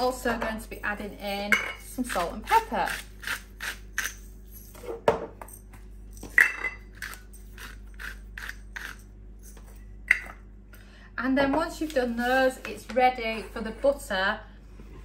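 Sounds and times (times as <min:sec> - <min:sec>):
salt and pepper grinder rasping: 0:01.9 - 0:04.3, 0:07.0 - 0:09.6.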